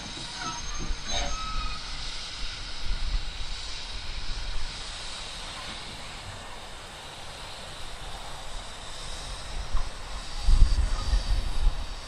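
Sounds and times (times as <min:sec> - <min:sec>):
steam train passing: 0:00.0 - 0:12.0.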